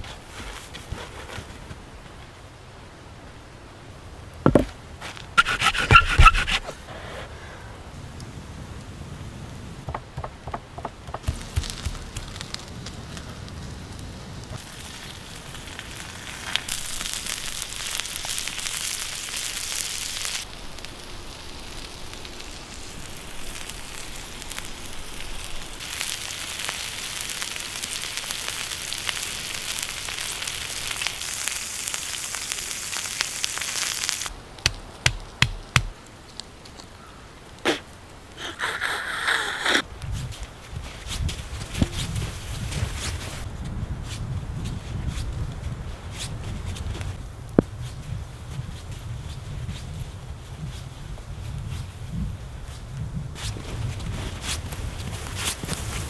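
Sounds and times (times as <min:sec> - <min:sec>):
sharp knocks: 0:09.9 - 0:12.0
meat sizzling and crackling: 0:11.0 - 0:35.9.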